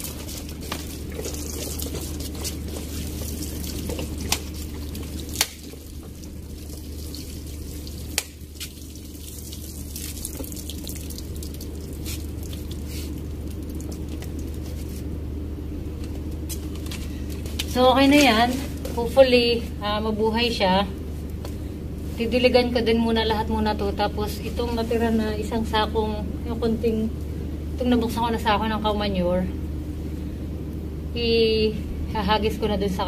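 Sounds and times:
water trickling onto soil: 0:00.0 - 0:15.1.

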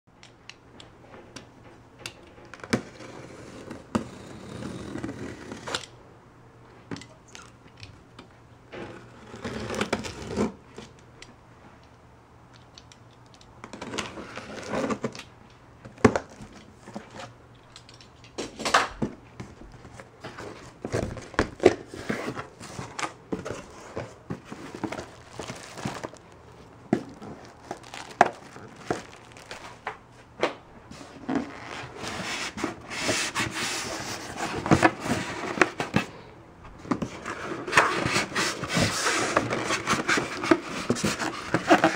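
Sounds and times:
cardboard flaps folded: 0:19.0 - 0:36.2
plastic wrap crinkling: 0:20.6 - 0:30.0
packing tape pulled: 0:24.5 - 0:29.9
styrofoam scraping cardboard: 0:30.9 - 0:36.0, 0:37.1 - 0:41.9.

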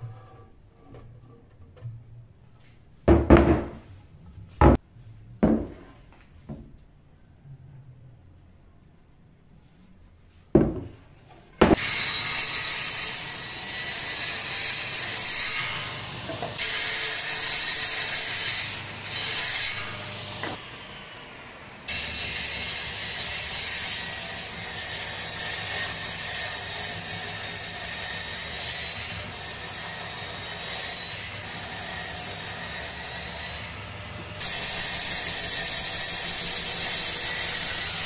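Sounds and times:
table saw cutting wood: 0:11.7 - 0:38.0.

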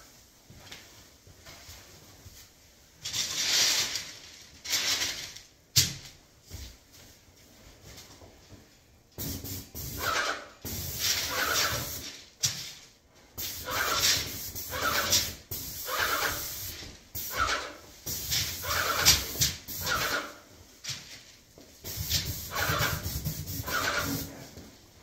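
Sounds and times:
spray gun hissing bursts: 0:09.2 - 0:12.1, 0:13.4 - 0:20.4, 0:21.8 - 0:24.4.

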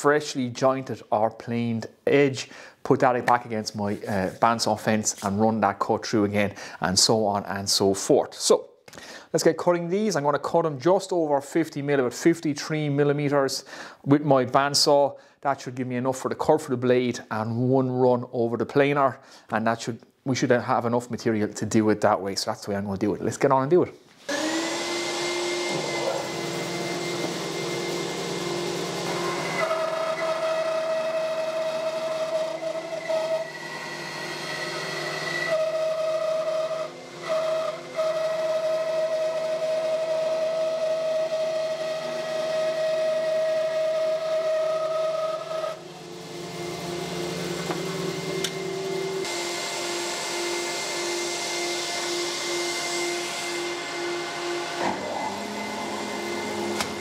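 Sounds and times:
bandsaw whine: 0:24.2 - 0:57.0
dust extractor running: 0:24.3 - 0:57.0
planer-jointer running: 0:24.3 - 0:57.0.

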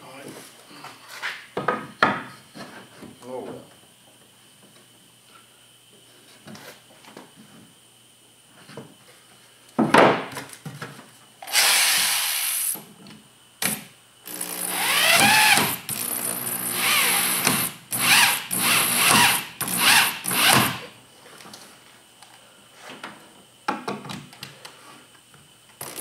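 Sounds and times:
power drill into wood: 0:11.4 - 0:12.8, 0:13.6 - 0:20.9, 0:25.8 - 0:26.0.

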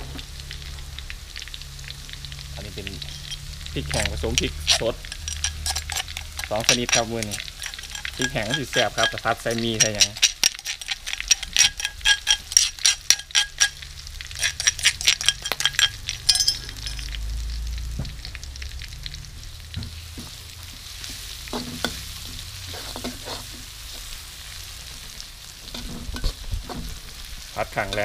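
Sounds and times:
garlic sizzling in hot oil: 0:00.0 - 0:28.0
spatula scraping wok: 0:02.6 - 0:17.2, 0:20.1 - 0:28.0
metal spoon knocking and scraping bowl: 0:03.0 - 0:13.8, 0:14.4 - 0:17.2, 0:21.5 - 0:22.0, 0:25.7 - 0:26.8.

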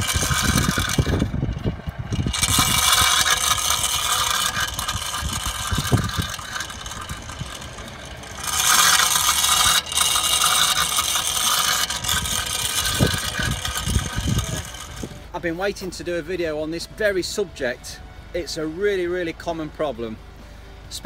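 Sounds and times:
stone scraping brake disc: 0:00.0 - 0:15.3.

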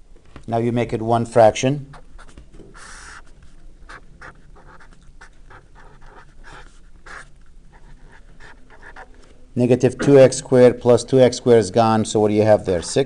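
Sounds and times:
pen scratching on paper: 0:01.9 - 0:09.1.

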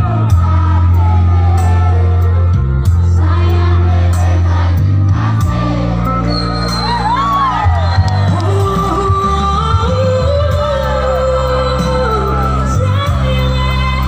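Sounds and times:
crowd shouting: 0:00.0 - 0:02.4, 0:03.7 - 0:08.4
live pop music over pa: 0:00.0 - 0:14.0.

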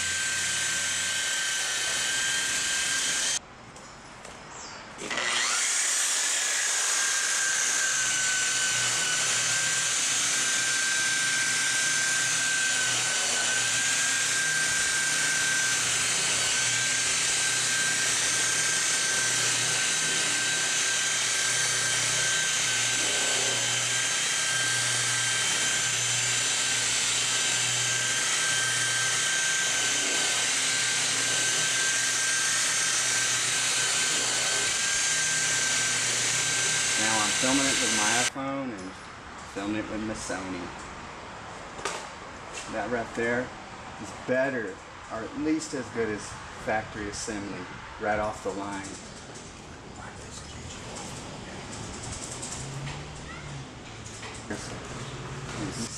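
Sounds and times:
electric polisher whining: 0:00.0 - 0:03.4, 0:05.0 - 0:38.3.

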